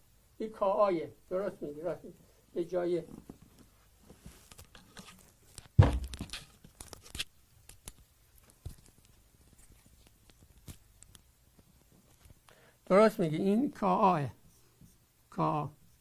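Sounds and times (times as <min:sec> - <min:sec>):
crackling rustle: 0:03.0 - 0:12.6.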